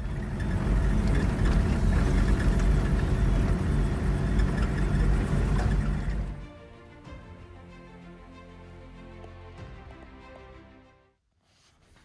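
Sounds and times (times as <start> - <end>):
vehicle engine and tyre rumble: 0.0 - 6.4.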